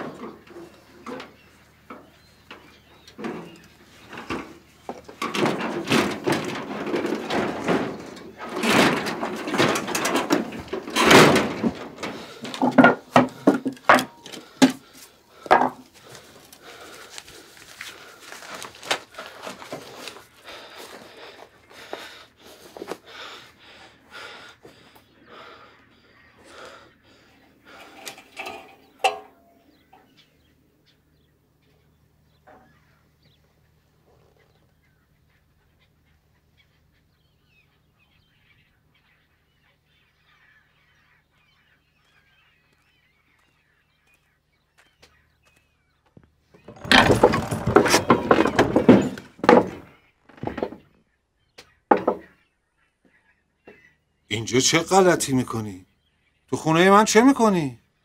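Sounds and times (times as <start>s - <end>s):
objects clattering and knocking: 0.0s - 16.9s, 27.7s - 29.6s, 46.6s - 51.0s, 51.9s - 52.3s
rummaging rustling: 15.5s - 21.0s.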